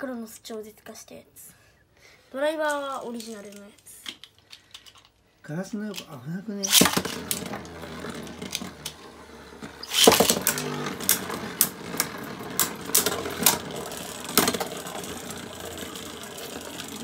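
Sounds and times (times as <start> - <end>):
spinning top landing with clatter: 6.6 - 17.0
spinning tops whirring: 6.6 - 17.0
tops clashing with sharp clacks: 6.7 - 17.0.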